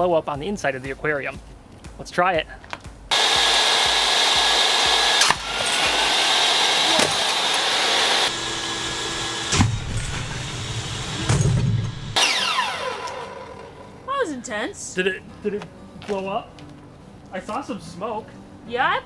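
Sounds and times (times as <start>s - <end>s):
table saw whining: 3.1s - 14.0s
sharp crack: 5.2s - 6.0s.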